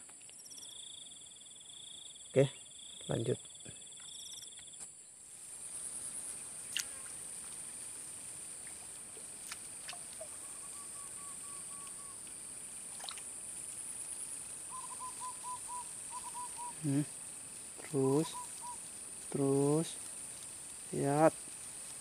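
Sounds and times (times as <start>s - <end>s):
insects chirping: 0.0s - 22.0s.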